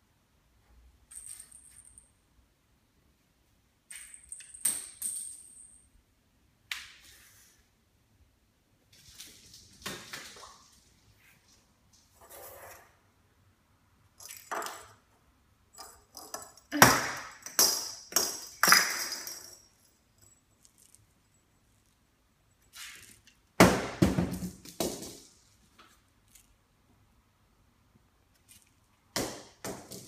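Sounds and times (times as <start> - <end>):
plastic ball bouncing on hard floor: 16.2 - 19.4, 23.6 - 25.3, 29.1 - 30.0.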